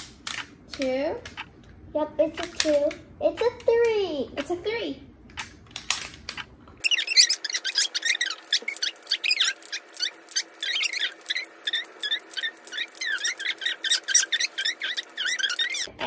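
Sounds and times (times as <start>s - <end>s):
rapid wooden clicking: 5.4s - 15.9s
squeaky high-pitched chirps: 6.8s - 15.9s.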